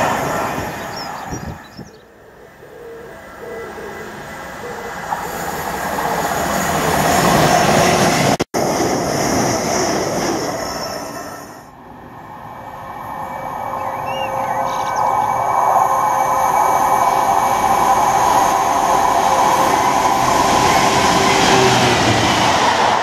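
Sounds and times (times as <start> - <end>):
diesel locomotive approaching: 0.0 - 23.0
electric train passing: 0.0 - 23.0.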